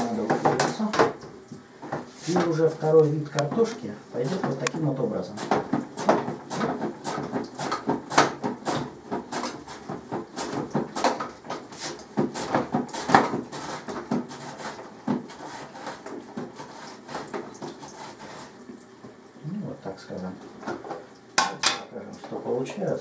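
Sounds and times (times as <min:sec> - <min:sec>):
potato scraping on a dicer: 0:02.2 - 0:18.6.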